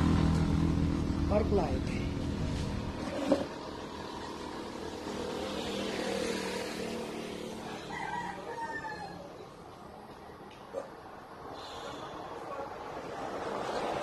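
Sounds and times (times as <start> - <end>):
motor vehicle passing: 0.0 - 14.0
rooster crowing: 7.4 - 9.4.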